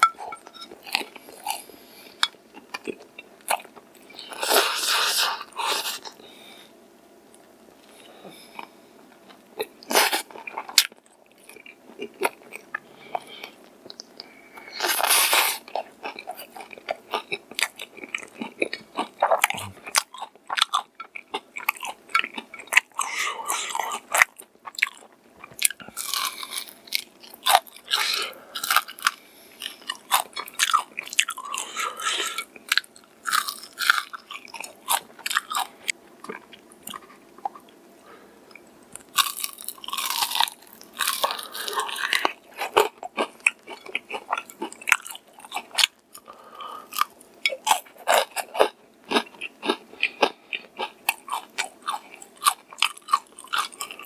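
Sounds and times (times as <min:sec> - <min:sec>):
crunching fried chicken: 0:14.2 - 0:37.6, 0:38.9 - 0:54.0.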